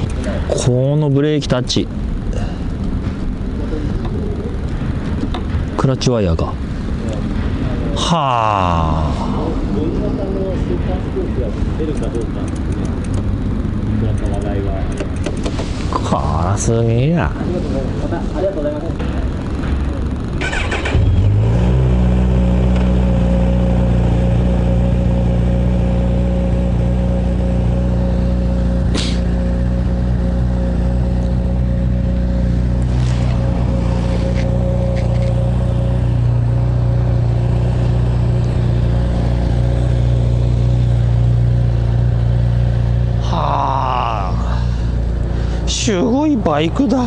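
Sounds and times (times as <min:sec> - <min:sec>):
sharp click: 0:12.0 - 0:13.3, 0:14.1 - 0:15.6
motorcycle engine idling: 0:22.9 - 0:47.0.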